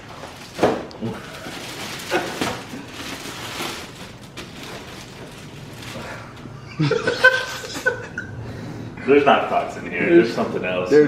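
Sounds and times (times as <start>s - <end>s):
plastic wrapping rustling: 0.0s - 6.6s
man laughing: 6.5s - 8.4s.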